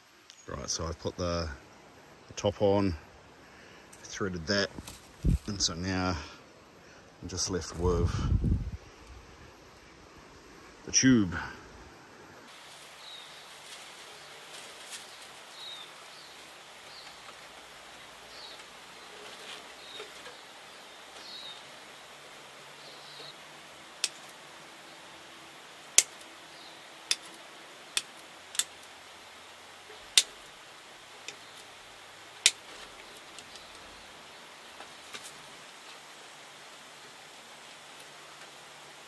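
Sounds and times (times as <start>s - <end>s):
chicken wire being handled: 18.5s - 20.4s.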